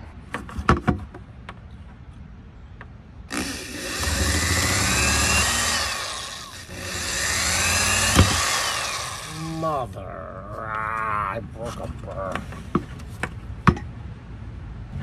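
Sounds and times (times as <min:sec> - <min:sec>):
electric drill whining: 0:03.3 - 0:09.5.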